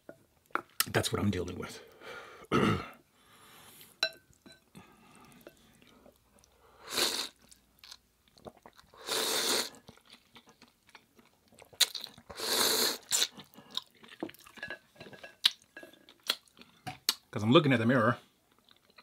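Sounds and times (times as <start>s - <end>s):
noodles slurped: 6.8s - 7.6s, 8.3s - 10.6s, 11.6s - 14.3s
chewing: 7.3s - 9.0s, 9.6s - 12.4s, 13.0s - 17.2s, 18.5s - 19.0s.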